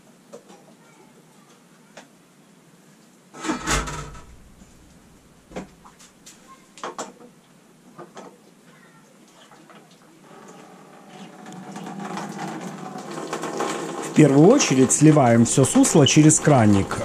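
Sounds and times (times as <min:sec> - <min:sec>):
metal clatter: 0:03.4 - 0:05.8
low thud: 0:03.6 - 0:05.8.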